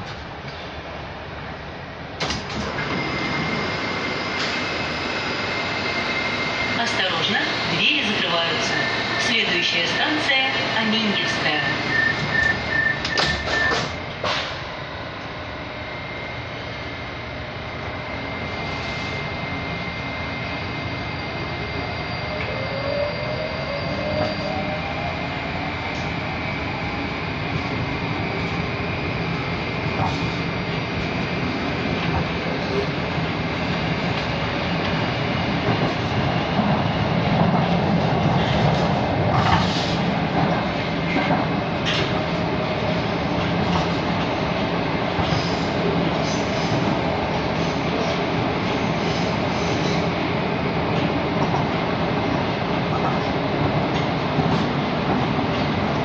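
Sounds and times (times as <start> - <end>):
train car running hum: 0.0 - 56.0
door warning tone: 11.7 - 14.0
train doors knocking shut: 12.2 - 14.6.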